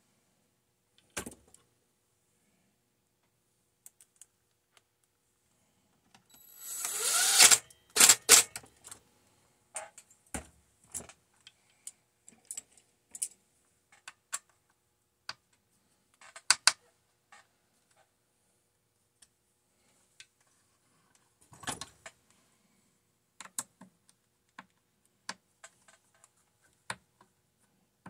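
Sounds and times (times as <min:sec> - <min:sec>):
cordless drill whine: 0:06.4 - 0:08.4.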